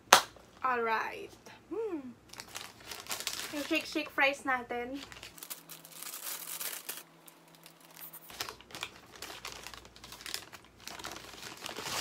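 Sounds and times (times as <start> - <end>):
paper bag crinkling: 2.3 - 4.0, 4.9 - 12.0.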